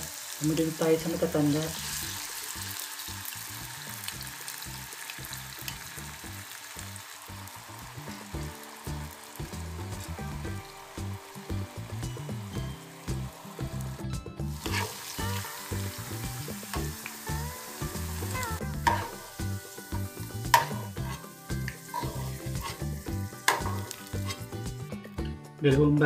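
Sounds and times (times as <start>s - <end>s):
potatoes sizzling in oil: 0.0s - 25.2s
metal spoon scraping a pan: 14.6s - 15.5s, 18.8s - 19.4s, 20.5s - 24.6s.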